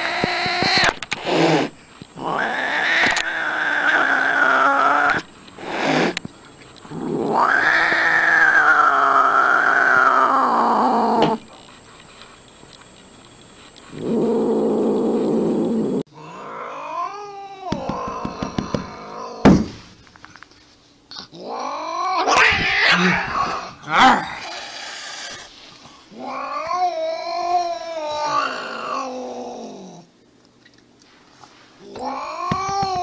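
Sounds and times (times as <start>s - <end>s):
cat yowling: 7.2s - 11.3s.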